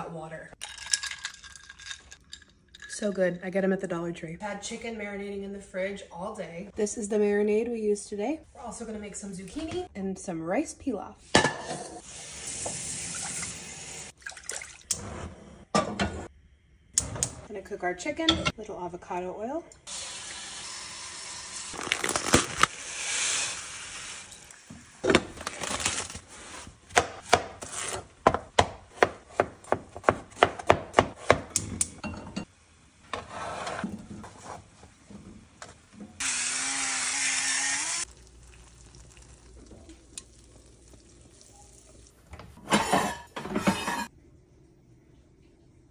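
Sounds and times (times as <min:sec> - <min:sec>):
knife chopping on cutting board: 0:26.9 - 0:31.7.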